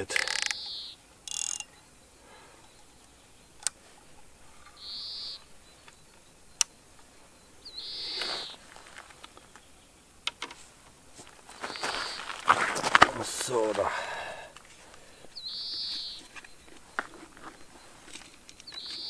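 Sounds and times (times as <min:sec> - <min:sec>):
fishing reel clicks: 0:00.1 - 0:01.7
short high bird calls: 0:00.2 - 0:09.8, 0:11.5 - 0:12.4, 0:15.4 - 0:18.1.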